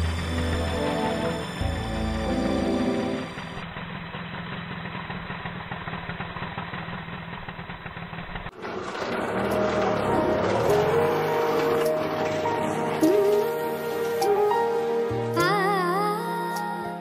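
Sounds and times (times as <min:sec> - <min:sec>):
background music: 0:00.0 - 0:03.6, 0:09.2 - 0:17.0
small engine running: 0:00.0 - 0:15.4.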